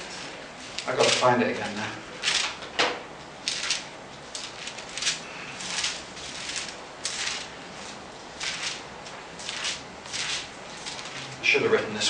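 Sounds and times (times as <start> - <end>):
book pages rustling: 0.2 - 1.4, 2.2 - 2.6, 4.4 - 11.4.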